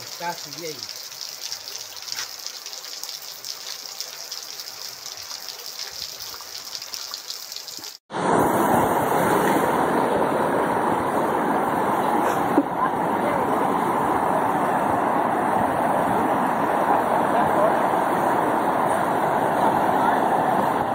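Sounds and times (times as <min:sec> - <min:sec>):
rain falling: 0:00.0 - 0:08.0
floodwater rushing across road: 0:00.0 - 0:20.9.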